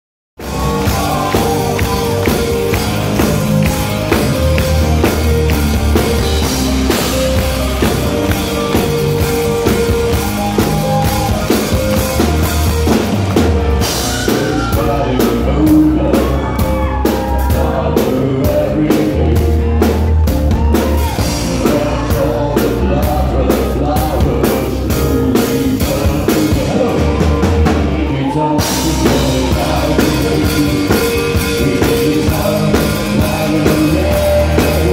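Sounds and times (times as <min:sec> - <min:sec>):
drum kit steady beat: 0:00.4 - 0:34.9
rock band playing live: 0:00.4 - 0:34.9.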